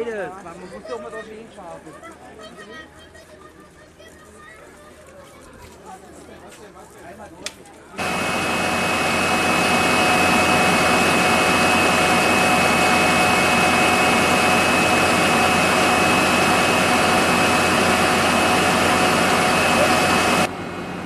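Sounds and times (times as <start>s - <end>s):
diesel locomotive engine running: 8.0s - 21.0s.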